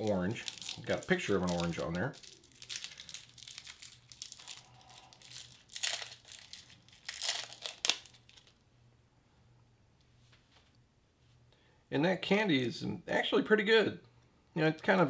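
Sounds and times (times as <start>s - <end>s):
plastic candy wrapper crinkling: 0.0s - 8.6s.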